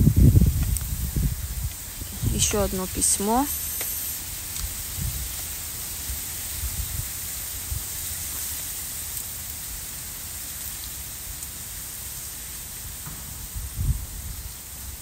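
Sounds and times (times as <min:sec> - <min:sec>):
wind bumps on microphone: 0:00.0 - 0:03.0, 0:04.6 - 0:05.4, 0:06.1 - 0:08.0, 0:13.0 - 0:15.0
steady outdoor hiss: 0:00.0 - 0:15.0.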